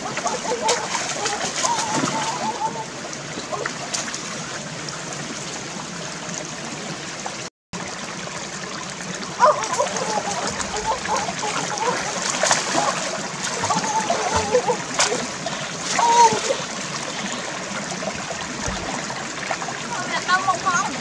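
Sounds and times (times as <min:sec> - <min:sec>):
hands slapping water: 0:00.0 - 0:02.6, 0:09.4 - 0:16.7
stream running over rocks: 0:00.0 - 0:21.0
water splashing and sloshing: 0:00.0 - 0:21.0.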